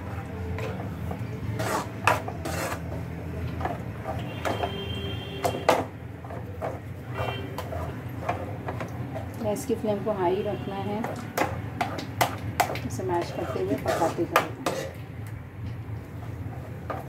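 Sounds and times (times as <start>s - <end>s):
utensil knocking and scraping pan: 0.6s - 4.8s, 5.4s - 8.9s, 11.0s - 15.0s.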